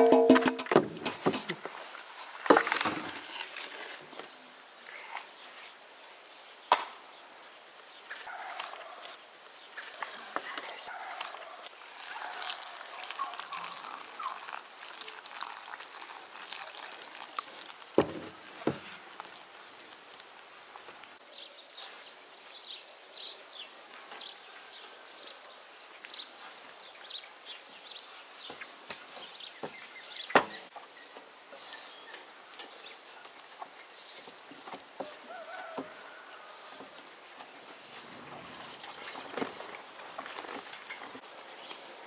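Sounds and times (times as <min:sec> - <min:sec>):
wooden spatula stirring: 0:09.9 - 0:21.1
dough worked by hand: 0:11.7 - 0:21.1
water poured into glass bowl: 0:11.8 - 0:18.6.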